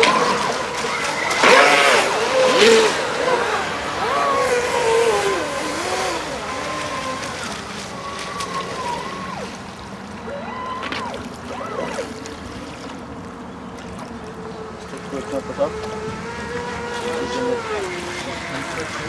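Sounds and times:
model speedboat motor whining: 0.0 - 19.0.

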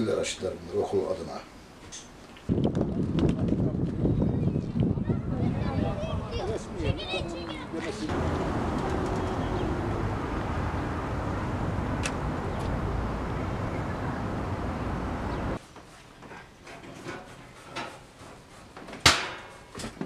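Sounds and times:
heavy low rumble: 8.1 - 15.6.

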